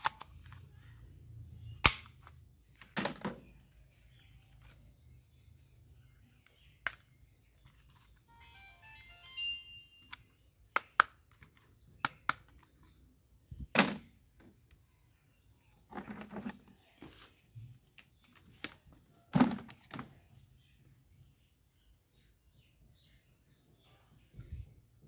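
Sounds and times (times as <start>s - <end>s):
sharp plastic clicks: 0.0s - 0.6s, 1.8s - 3.4s, 6.4s - 7.2s, 10.7s - 12.9s
toys knocking and rattling in bucket: 15.9s - 16.7s, 19.3s - 20.2s.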